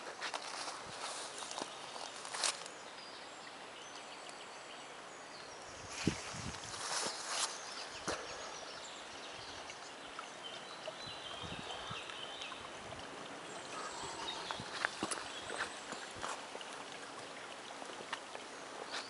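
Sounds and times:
footsteps on path: 0:00.0 - 0:02.7, 0:05.9 - 0:08.3, 0:14.3 - 0:16.5
flowing water: 0:00.0 - 0:19.0
faint bird calls: 0:13.6 - 0:16.0.

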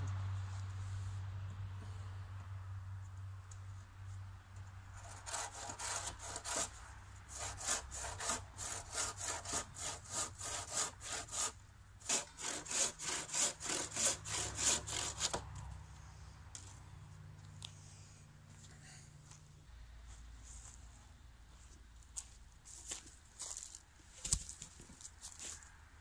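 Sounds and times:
handsaw cutting timber: 0:05.0 - 0:15.4.

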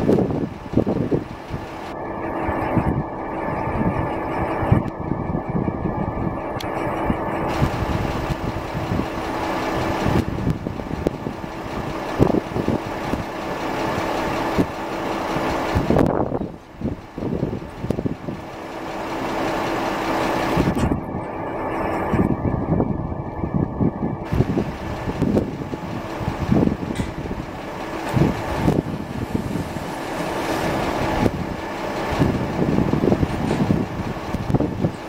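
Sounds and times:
steam locomotive hissing: 0:24.3 - 0:35.0.

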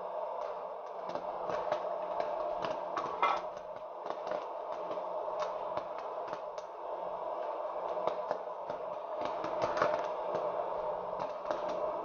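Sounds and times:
popcorn maker fan blowing: 0:00.0 - 0:12.0.

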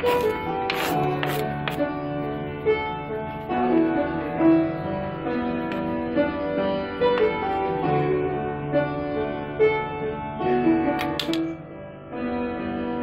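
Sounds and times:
instrumental music with held notes: 0:00.0 - 0:13.0.

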